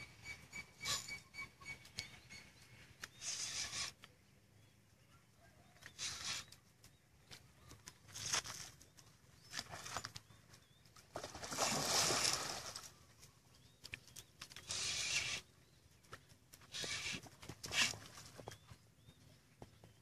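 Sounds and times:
birds chirping faintly: 0.0 - 20.0
fish splashing at water surface: 11.2 - 12.9.

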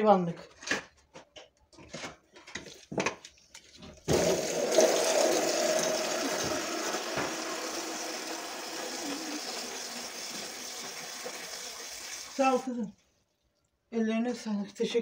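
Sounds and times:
water pouring onto straw: 4.2 - 12.8.

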